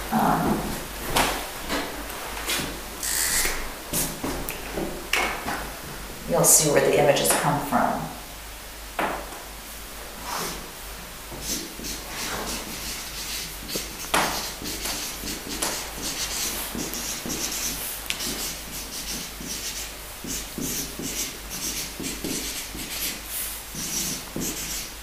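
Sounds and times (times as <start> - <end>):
rustling and rubbing: 11.3 - 25.0.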